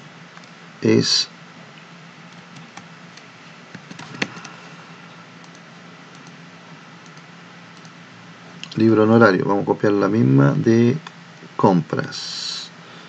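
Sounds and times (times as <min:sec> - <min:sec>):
low hum and hiss: 0:00.0 - 0:13.0
computer keys clicking: 0:02.3 - 0:04.6, 0:05.4 - 0:06.4, 0:07.0 - 0:08.0.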